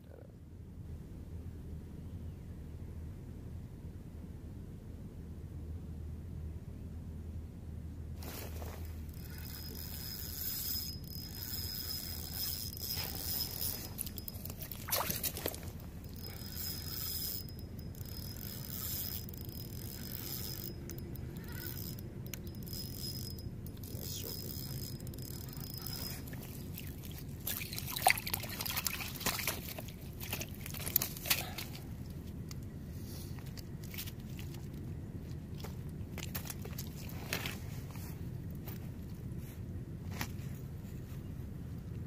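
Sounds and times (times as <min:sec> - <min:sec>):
faint high tone: 0:20.6 - 0:22.7.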